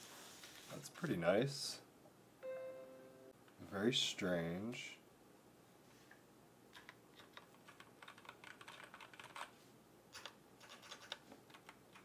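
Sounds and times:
faint keyboard typing clicks: 0:06.7 - 0:09.5, 0:10.1 - 0:12.0.

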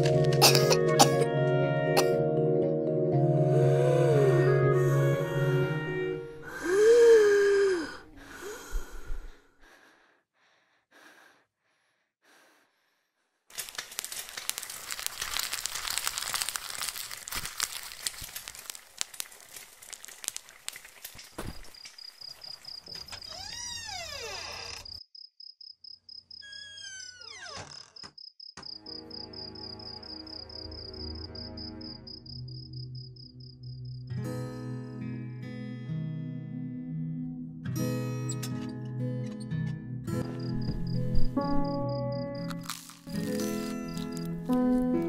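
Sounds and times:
music: 0:00.0 - 0:08.6, 0:28.8 - 0:45.0
dense crackling noise: 0:13.5 - 0:22.4
cricket trilling: 0:20.0 - 0:26.8, 0:40.2 - 0:44.4.

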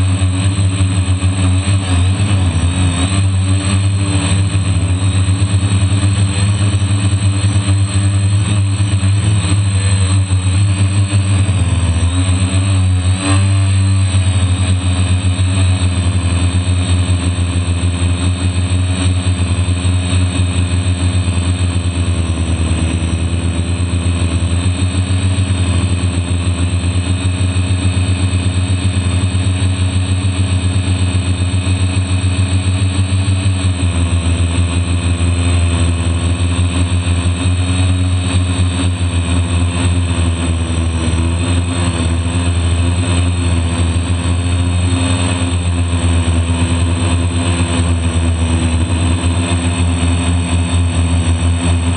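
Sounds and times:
quadcopter motors droning: 0:00.0 - 0:51.9.

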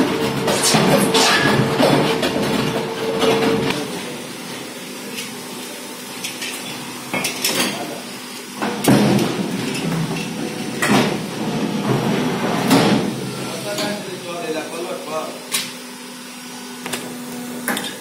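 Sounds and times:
machinery running: 0:00.0 - 0:03.8.

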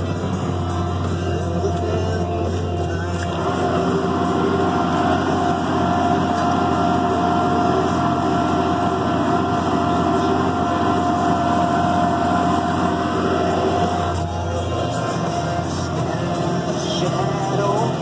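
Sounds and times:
steady whine: 0:00.0 - 0:18.0
tractor diesel engine running: 0:00.0 - 0:18.0.

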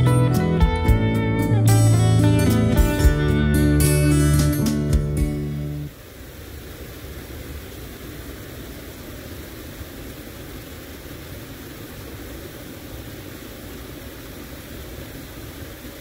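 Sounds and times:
low rumble and hiss: 0:05.0 - 0:16.0
faint hum: 0:05.5 - 0:16.0.

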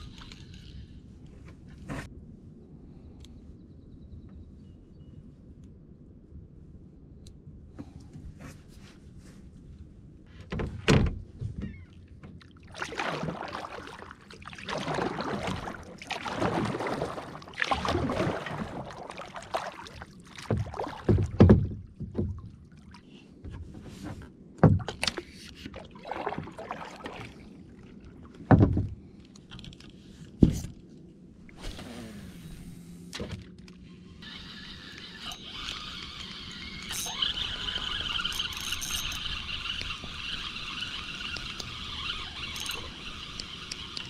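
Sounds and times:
paddle strokes splashing in water: 0:12.4 - 0:23.0, 0:24.9 - 0:27.6.

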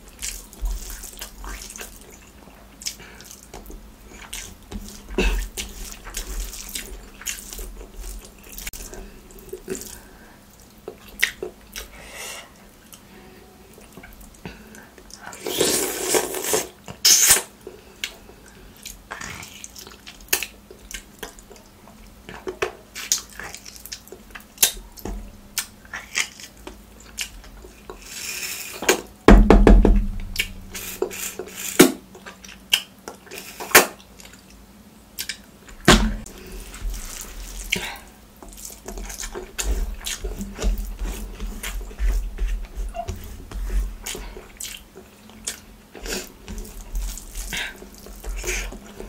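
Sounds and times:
wet chewing and lip smacks: 0:10.6 - 0:11.9, 0:35.2 - 0:35.5, 0:44.0 - 0:49.0
dull thumps: 0:29.3 - 0:30.8, 0:35.8 - 0:37.0.

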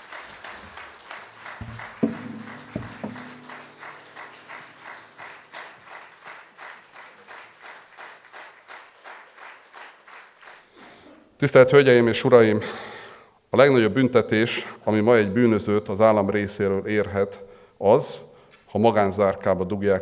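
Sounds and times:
audience clapping in unison: 0:00.0 - 0:11.0
guitars set down knocking: 0:01.6 - 0:05.0
guitar strings ringing: 0:01.6 - 0:05.6.

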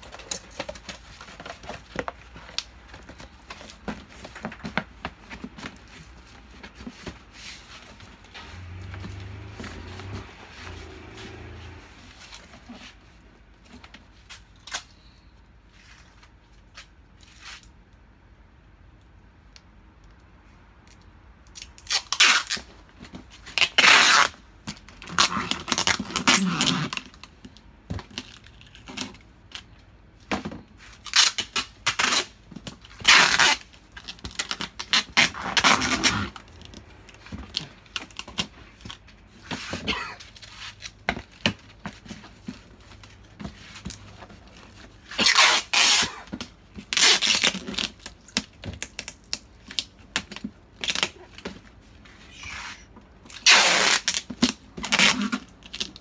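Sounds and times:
cardboard rustling: 0:00.0 - 0:14.5, 0:30.3 - 0:56.0
packing tape ripping off roll: 0:21.5 - 0:22.7, 0:23.4 - 0:24.4, 0:25.0 - 0:27.3, 0:31.0 - 0:41.6, 0:45.0 - 0:51.5, 0:52.4 - 0:56.0.

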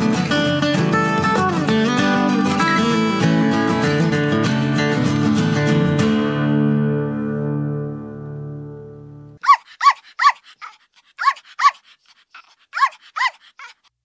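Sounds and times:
acoustic guitar music: 0:00.0 - 0:09.4
dog yipping: 0:09.4 - 0:13.9.

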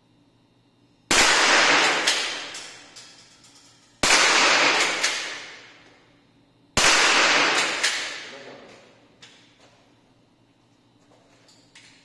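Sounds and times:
rifle shot echoing indoors: 0:01.1 - 0:02.9, 0:04.0 - 0:05.8, 0:06.8 - 0:08.4.

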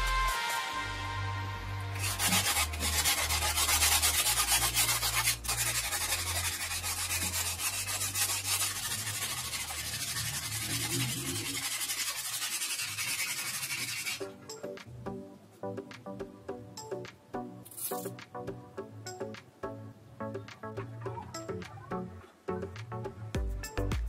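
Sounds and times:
sandpaper rasping: 0:02.0 - 0:14.3.

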